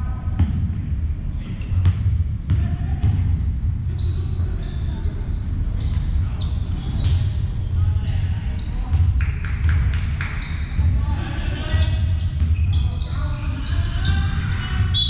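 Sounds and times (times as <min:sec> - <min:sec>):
low hum of hall: 0:00.0 - 0:15.0
players' voices: 0:00.0 - 0:15.0
basketball bouncing on court: 0:00.2 - 0:04.0, 0:08.9 - 0:11.1, 0:11.7 - 0:13.1
sneakers squeaking on floor: 0:00.2 - 0:05.0, 0:05.6 - 0:15.0.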